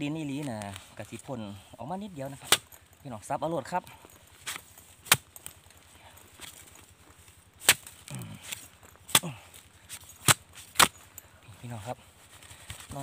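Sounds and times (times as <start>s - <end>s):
digging tool chopping into soil: 2.4s - 2.8s, 4.4s - 5.5s, 6.4s - 6.7s, 7.5s - 11.1s.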